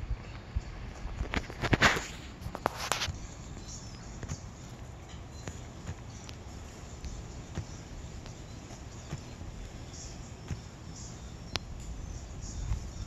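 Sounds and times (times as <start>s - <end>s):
faint bird chirps: 3.2s - 13.0s.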